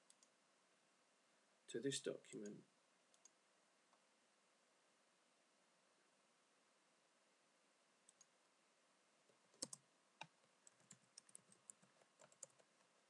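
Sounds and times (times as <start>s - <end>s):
keyboard typing: 9.5s - 12.9s.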